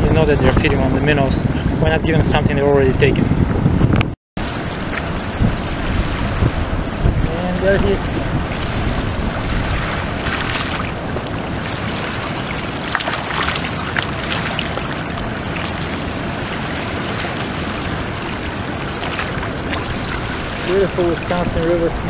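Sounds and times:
wind buffeting microphone: 0:00.0 - 0:22.0
water lapping at shore: 0:04.4 - 0:22.0
fish splashing at surface: 0:09.6 - 0:11.0, 0:11.8 - 0:16.1, 0:18.0 - 0:20.6.

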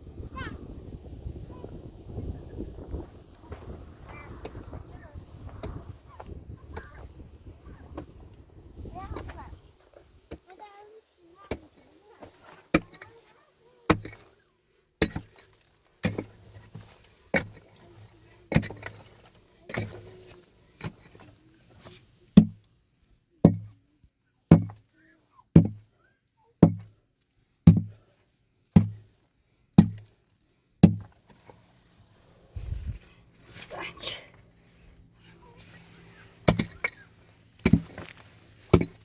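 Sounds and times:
heavy chopping blows: 0:36.4 - 0:39.0.

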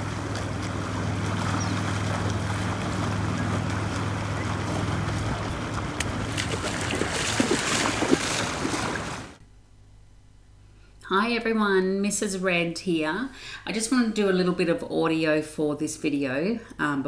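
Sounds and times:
small splashes and crackles: 0:00.0 - 0:09.4
water lapping over sand: 0:00.0 - 0:09.4
wind rumbling on microphone: 0:00.0 - 0:09.4
steady low hum: 0:00.0 - 0:14.7.

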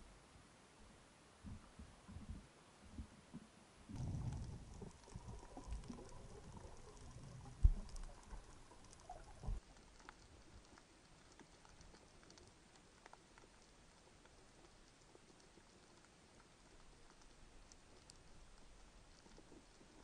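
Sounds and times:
faint clicks and crackles: 0:01.4 - 0:20.0
water rushing and bubbling: 0:03.9 - 0:09.7.

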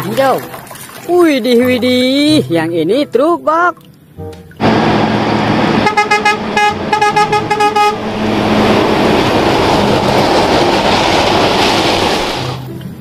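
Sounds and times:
truck passing by: 0:04.6 - 0:13.0
truck horn short toots: 0:05.8 - 0:08.1.

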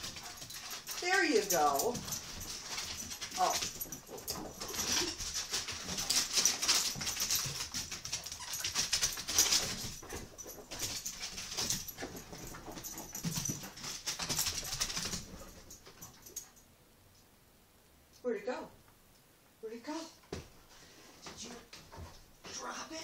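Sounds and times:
dog claws skittering on wooden floor: 0:00.0 - 0:16.5.

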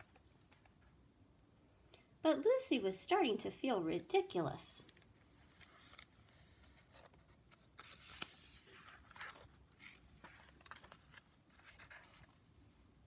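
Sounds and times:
paper page turning: 0:04.9 - 0:12.4.

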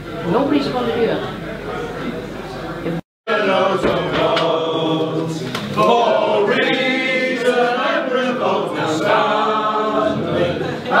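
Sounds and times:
group singing in unison: 0:03.3 - 0:11.0.

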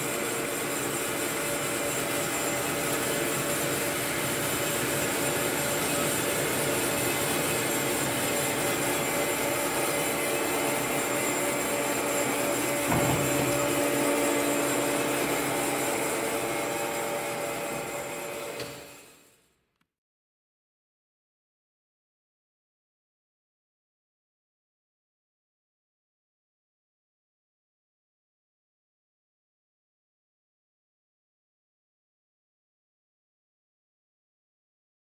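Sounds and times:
bandsaw running with hum: 0:00.0 - 0:19.3
knock: 0:12.9 - 0:13.8.

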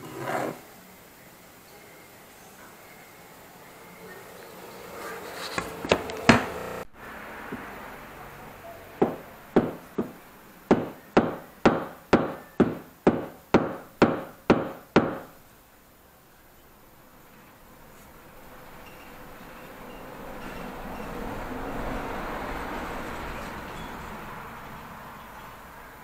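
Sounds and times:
hammer knocking on knife: 0:09.0 - 0:15.3.

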